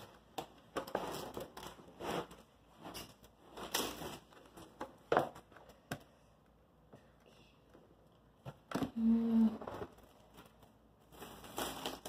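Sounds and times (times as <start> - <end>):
plastic stretch wrap crinkling: 9.6 - 12.0.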